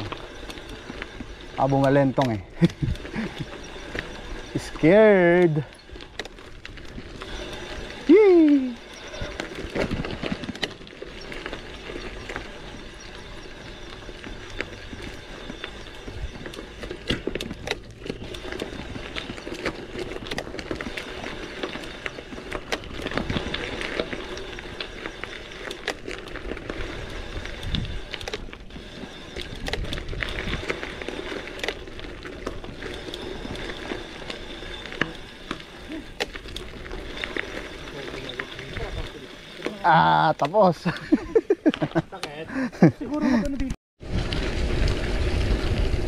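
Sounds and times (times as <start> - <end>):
bike rattling: 0.0 - 46.0
bike tyre noise on trail: 0.0 - 46.0.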